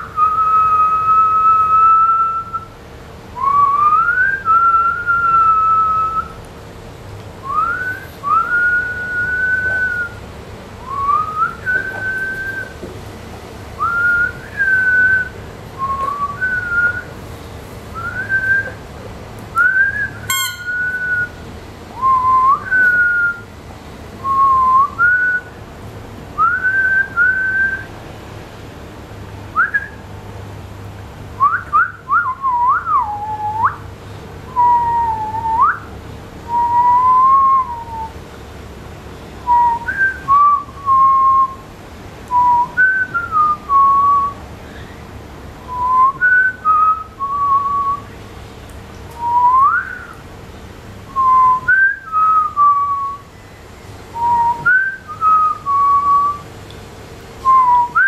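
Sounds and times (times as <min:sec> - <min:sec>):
rubber pig toy squeaking: 0:20.3 - 0:20.8.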